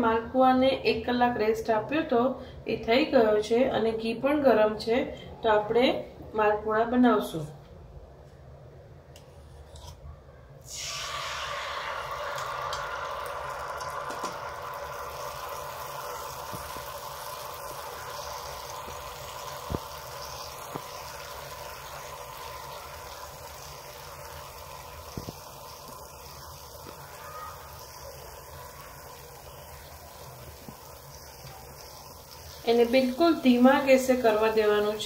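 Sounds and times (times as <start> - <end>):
batter sizzling in hot oil: 10.7 - 35.0.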